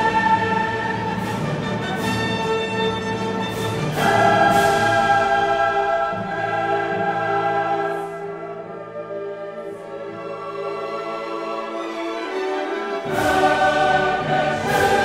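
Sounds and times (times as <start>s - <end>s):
orchestral strings: 0.0s - 15.0s
choir singing held notes: 3.7s - 12.0s, 12.7s - 15.0s.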